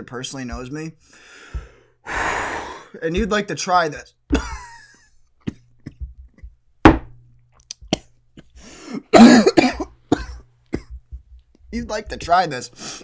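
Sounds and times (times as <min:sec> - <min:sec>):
rush of breath: 0:01.1 - 0:02.9
man coughing: 0:08.4 - 0:11.0.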